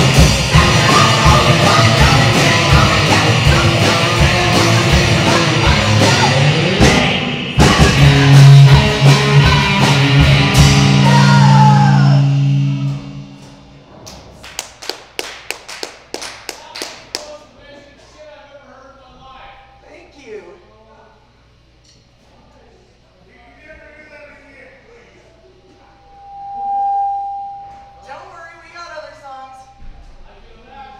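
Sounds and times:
fast loud punk band playing: 0.0 - 13.3.

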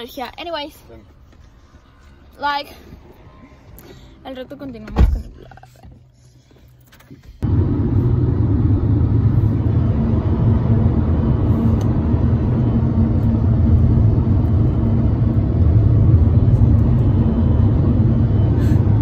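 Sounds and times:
road noise: 0.0 - 19.0
vehicle engine drone: 5.5 - 19.0.

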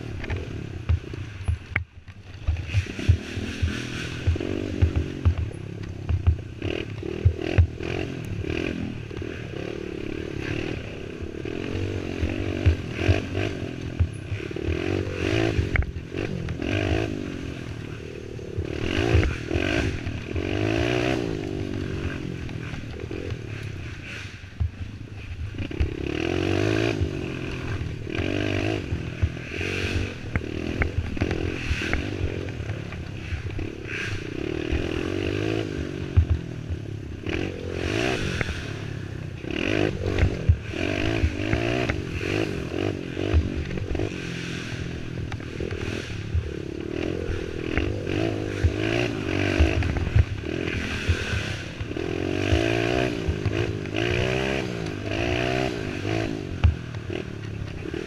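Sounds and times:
knocks and rattles over bumps: 0.0 - 7.9, 18.6 - 26.2, 26.8 - 36.8
quad engine revving: 2.5 - 58.0.

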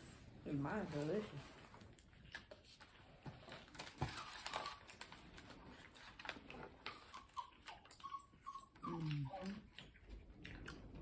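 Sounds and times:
paper wrappers rustling: 0.5 - 7.0
people chewing: 1.8 - 11.0.

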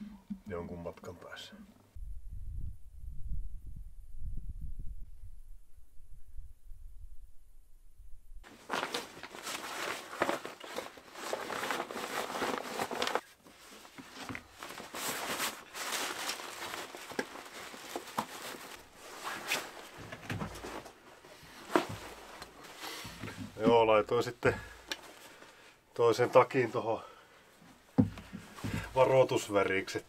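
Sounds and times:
nylon gear rustling: 8.4 - 26.4, 27.5 - 30.0
knocks: 28.0 - 29.0.

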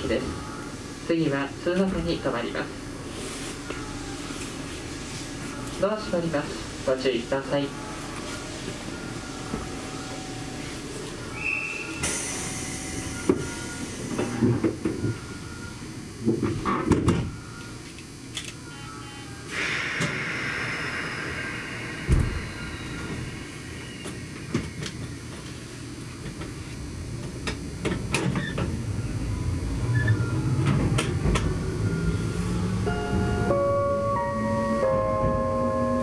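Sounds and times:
train doors knocking and air hiss: 8.1 - 17.5, 19.4 - 28.9, 30.0 - 35.8
thud: 22.1 - 22.4
traction motor whine: 26.2 - 36.0
chime melody: 32.9 - 36.0.

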